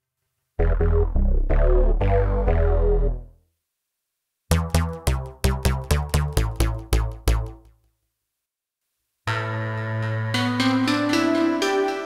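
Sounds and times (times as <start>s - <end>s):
synthesizer bass riff: 0.6s - 3.3s, 4.5s - 7.7s.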